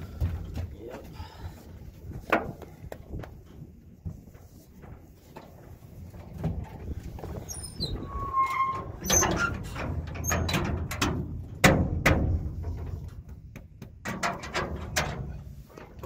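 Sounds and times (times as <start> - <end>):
short squeak: 7.4 - 9.5
knocks and clanks in metal trailer: 8.0 - 16.0.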